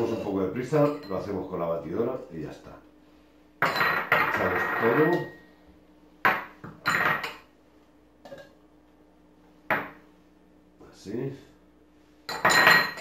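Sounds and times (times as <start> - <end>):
glass bowls clinking: 0.0 - 1.5, 3.6 - 5.5, 6.3 - 7.5, 8.2 - 8.6, 12.3 - 13.0.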